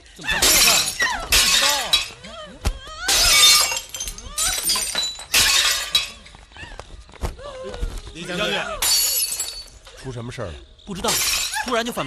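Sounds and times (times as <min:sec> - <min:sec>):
objects smashing and shattering: 0:00.3 - 0:02.2, 0:03.1 - 0:06.2.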